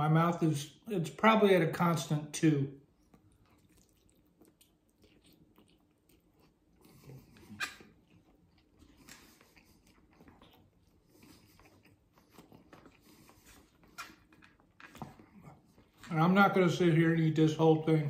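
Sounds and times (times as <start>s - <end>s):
person chewing noodles: 2.8s - 16.0s.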